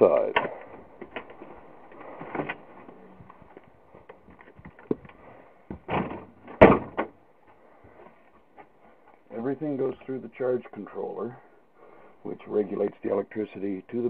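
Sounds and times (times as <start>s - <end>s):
rustling: 0.2s - 11.0s
footsteps indoors: 0.6s - 5.9s
loud thumps: 5.7s - 7.2s.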